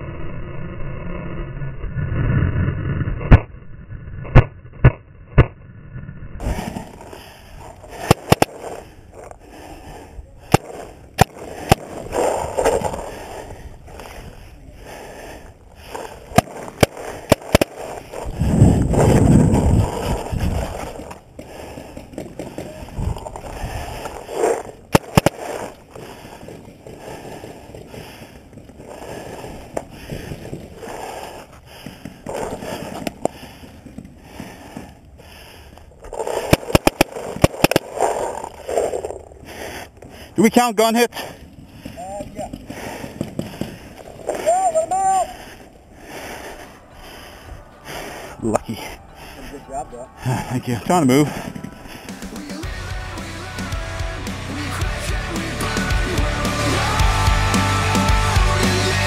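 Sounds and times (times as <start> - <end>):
balls smacking concrete: 7.9 - 8.8, 10.5 - 13.2, 15.9 - 18.3, 20.7 - 28.9, 36.0 - 39.2, 42.2 - 44.4
paintball markers firing: 7.9 - 8.9, 10.4 - 14.1, 15.8 - 18.4, 19.0 - 31.1, 36.1 - 39.0.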